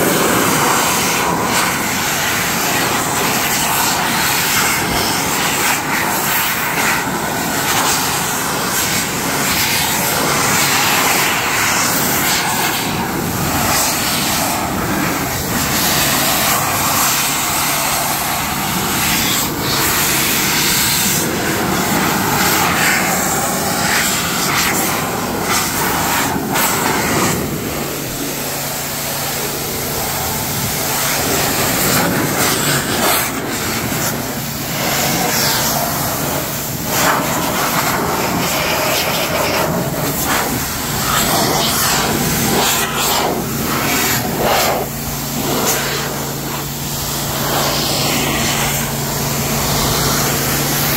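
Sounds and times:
air blower rushing: 0:00.0 - 0:50.9.

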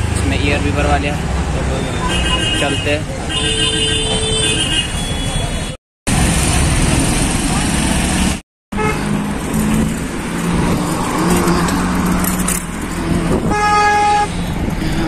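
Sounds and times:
road noise: 0:00.0 - 0:15.0
vehicle engines humming: 0:00.0 - 0:15.0
vehicle horn beeping: 0:01.8 - 0:05.8, 0:08.7 - 0:09.1, 0:13.4 - 0:14.3.

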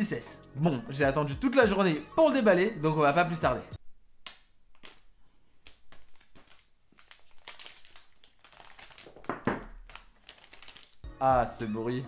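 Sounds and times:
plastic shrink-wrap crinkling: 0:04.7 - 0:11.1.

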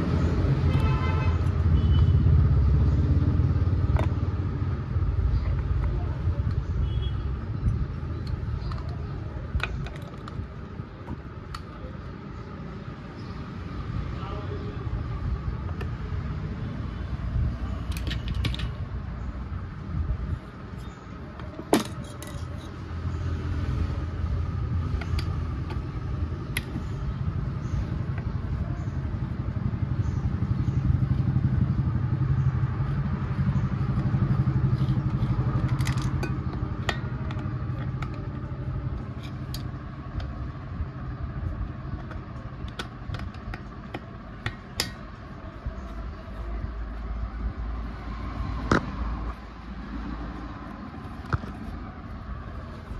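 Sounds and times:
metal tools clinking: 0:21.7 - 0:22.9, 0:35.0 - 0:37.1.

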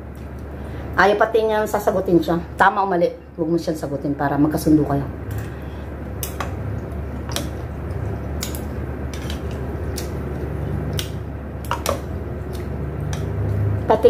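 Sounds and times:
chopsticks clicking on bowl: 0:10.9 - 0:13.6.

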